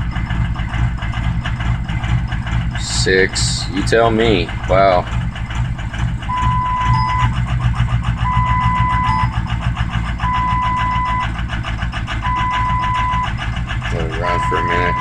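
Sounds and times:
diesel engine idling with clatter: 0.0s - 15.0s
warning chime beeps: 6.3s - 7.3s, 8.2s - 9.4s, 10.2s - 11.3s, 12.2s - 13.3s, 14.2s - 15.0s.

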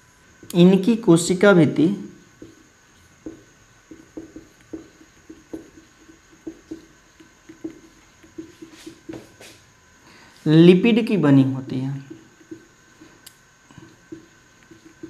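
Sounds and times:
marker writing on whiteboard: 2.4s - 9.6s, 12.0s - 15.0s.

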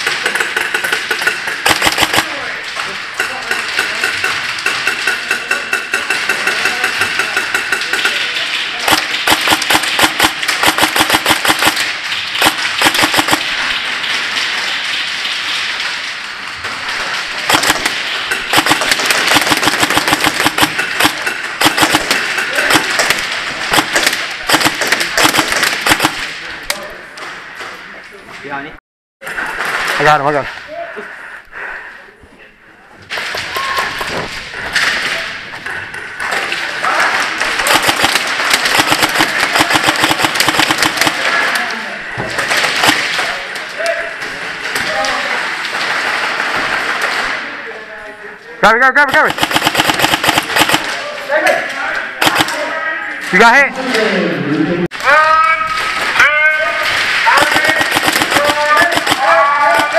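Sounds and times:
airsoft guns firing bursts: 0.0s - 2.6s, 3.2s - 15.4s, 17.4s - 26.4s, 36.2s - 41.6s, 42.3s - 43.4s, 49.0s - 51.0s, 52.2s - 52.7s, 56.8s - 59.9s
pellets smacking wooden barricades: 0.0s - 26.5s, 33.1s - 47.6s, 55.0s - 59.9s.

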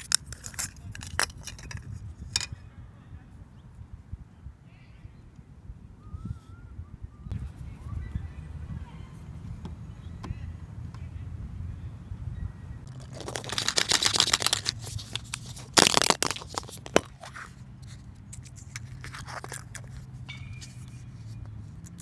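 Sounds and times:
plastic crackling clicks: 12.9s - 17.2s
loud plastic crack: 12.9s - 17.4s.

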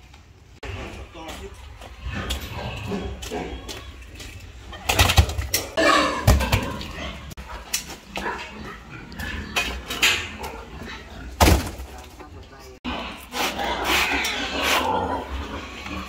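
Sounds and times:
tree trunks thudding on concrete: 11.4s - 11.9s.

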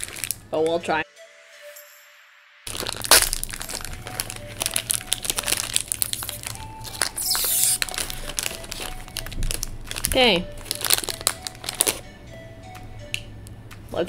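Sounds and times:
snack packet crackling: 0.0s - 0.4s, 2.7s - 12.0s.

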